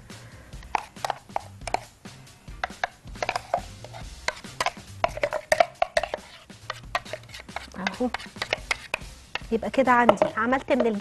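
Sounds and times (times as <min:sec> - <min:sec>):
utensil scraping plastic jar: 0:00.6 - 0:01.9, 0:02.6 - 0:11.0.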